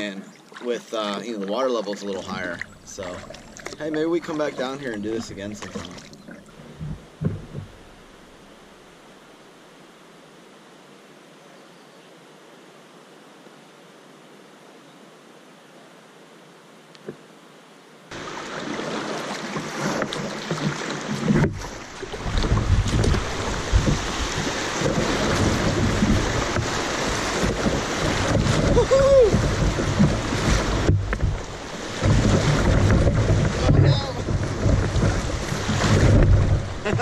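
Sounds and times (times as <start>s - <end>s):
river water rushing and splashing: 0.0s - 9.4s, 18.1s - 37.0s
wind buffeting microphone: 21.2s - 37.0s.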